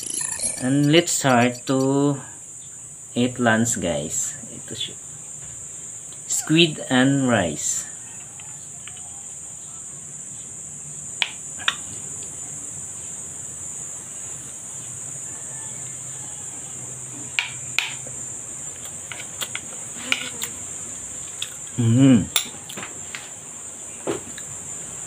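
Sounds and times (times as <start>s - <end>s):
high-pitched background buzz: 0.0s - 25.0s.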